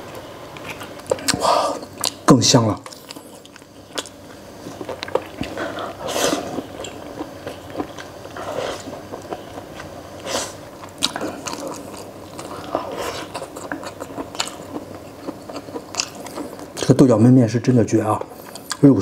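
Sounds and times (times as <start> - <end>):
wet chewing: 0.6 - 17.0, 18.2 - 18.9
person slurping noodles: 5.4 - 6.8.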